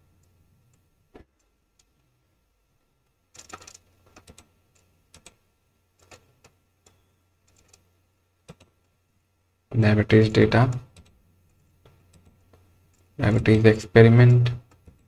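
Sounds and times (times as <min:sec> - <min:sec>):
computer mouse clicks: 0:03.3 - 0:05.4, 0:06.0 - 0:07.8, 0:08.4 - 0:08.9, 0:10.7 - 0:13.1.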